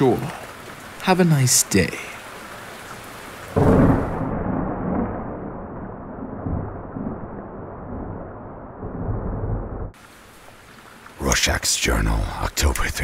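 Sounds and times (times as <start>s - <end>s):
muffled thunder rumbling: 3.5s - 10.0s
thunder clap: 3.6s - 9.9s.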